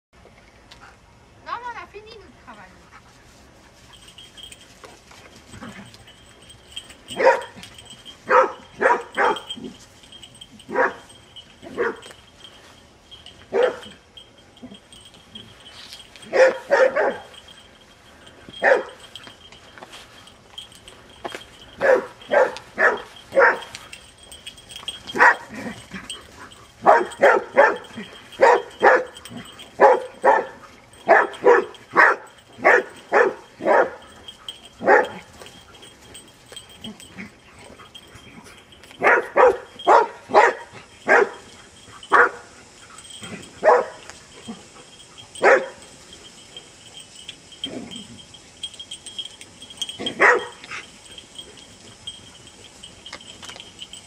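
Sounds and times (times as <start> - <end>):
dogs barking excitedly: 5.4 - 54.0.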